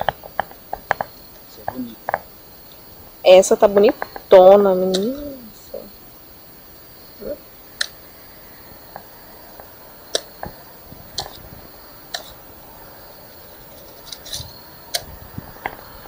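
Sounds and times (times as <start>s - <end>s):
sharp clicks and small taps: 0.0s - 2.2s.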